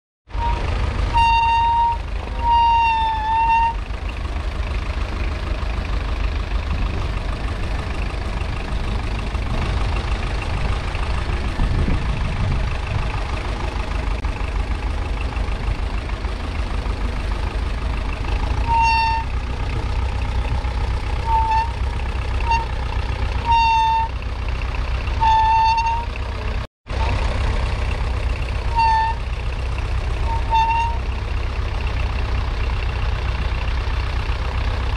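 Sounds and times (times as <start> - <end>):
diesel tractor engine rumbling: 0.2 - 34.9
short high-pitched squeaks: 0.3 - 3.9, 18.4 - 24.2, 25.2 - 26.3, 28.7 - 29.4, 30.2 - 31.1.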